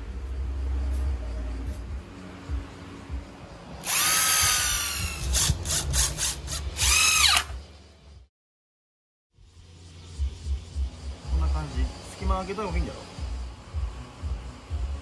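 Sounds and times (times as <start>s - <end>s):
cordless drill whining: 3.8s - 7.6s.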